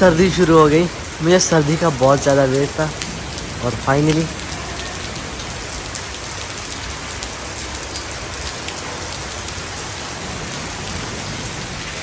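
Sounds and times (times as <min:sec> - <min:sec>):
rain on wet paving and grass: 0:00.0 - 0:12.0.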